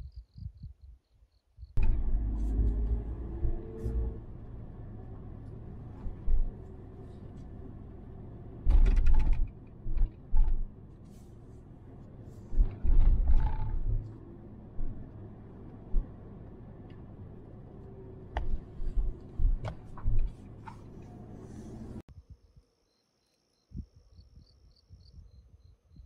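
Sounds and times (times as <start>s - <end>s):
car driving drone: 1.8s - 22.1s
heavy low thumps and rumbles: 12.0s - 21.0s.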